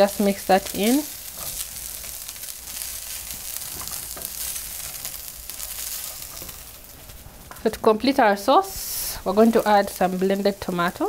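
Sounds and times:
meat and vegetables sizzling in pan: 0.0 - 11.0
spatula stirring in pan: 0.5 - 7.8.

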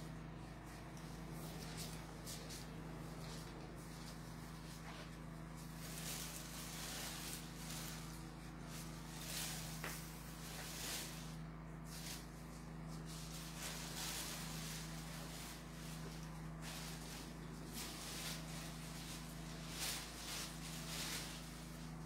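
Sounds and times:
low electrical hum: 0.0 - 22.0.

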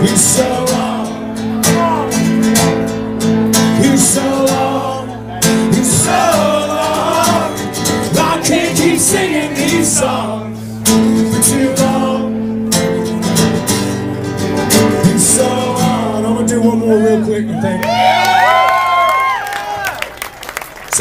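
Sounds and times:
acoustic guitar strumming: 0.0 - 17.6
person singing: 3.7 - 10.5, 14.8 - 17.8.

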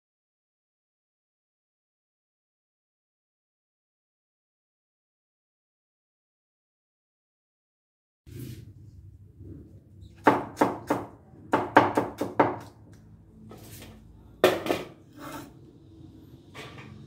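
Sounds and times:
knife chopping on wooden board: 10.2 - 12.8.

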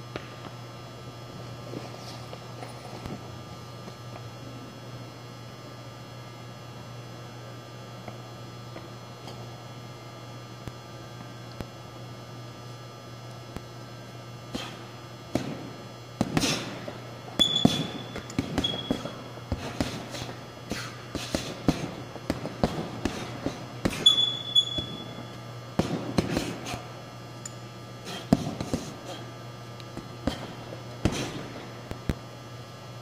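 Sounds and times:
strikes on punching bags: 15.3 - 25.2, 25.8 - 26.7, 28.1 - 29.0, 30.0 - 31.6.

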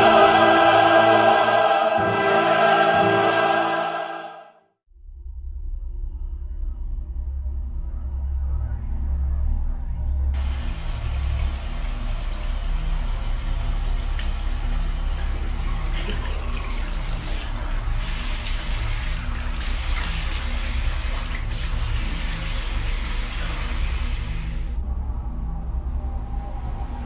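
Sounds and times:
low steady hum: 5.0 - 27.0
tap water running into sink: 10.4 - 24.6.

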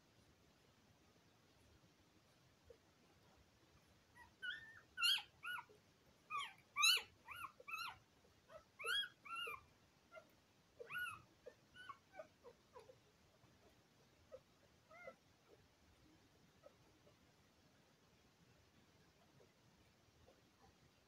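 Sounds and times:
puppies squealing: 4.2 - 5.7, 6.3 - 9.7, 10.8 - 13.0.

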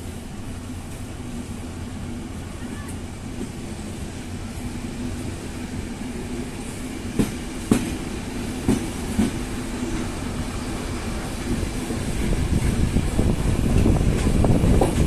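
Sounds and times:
train wheels clicking over rail joints: 7.0 - 10.3, 11.0 - 15.0.

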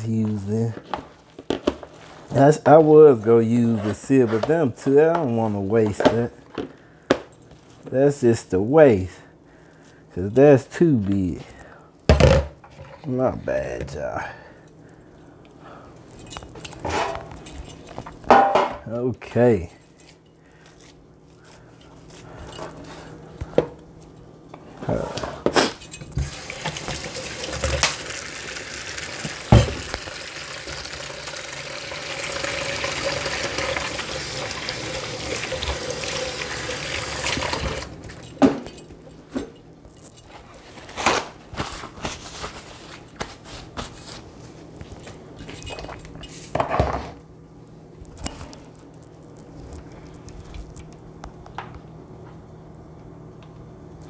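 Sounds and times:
pans knocking and clattering: 18.3 - 18.8
kitchen tap running: 26.1 - 38.2.

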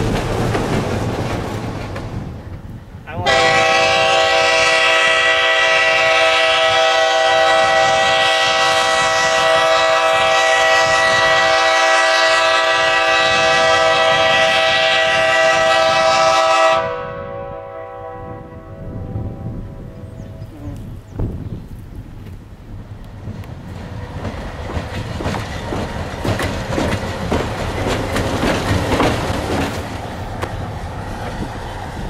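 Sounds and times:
locomotive air horn chord: 3.2 - 20.3.

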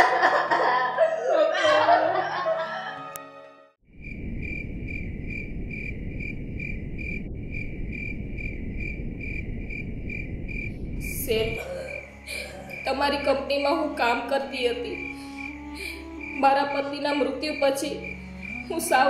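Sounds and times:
low rumble: 3.9 - 17.0
crickets chirping: 3.9 - 19.0.

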